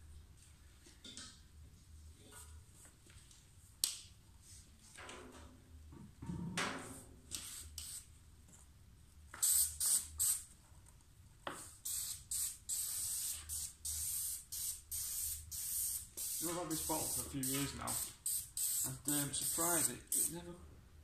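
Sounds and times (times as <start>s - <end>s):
spray gun hissing in bursts: 9.4s - 10.4s, 11.8s - 20.4s.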